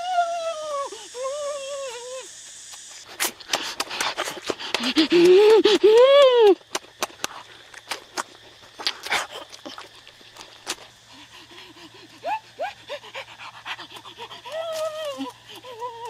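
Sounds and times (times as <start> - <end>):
wet chewing and lip-smacking: 6.6 - 11.9.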